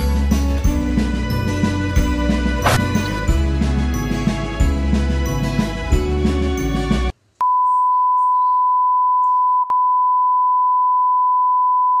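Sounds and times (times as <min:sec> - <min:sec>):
background music: 0:00.0 - 0:07.2.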